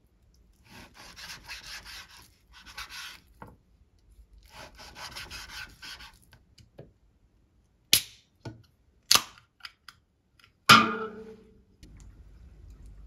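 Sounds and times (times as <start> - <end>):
knife sawing through ribs: 0.7 - 3.2.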